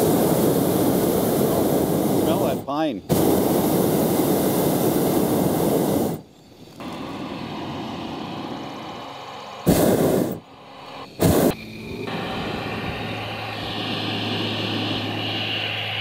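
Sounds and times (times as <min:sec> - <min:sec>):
propane burner roaring: 0:00.0 - 0:16.0.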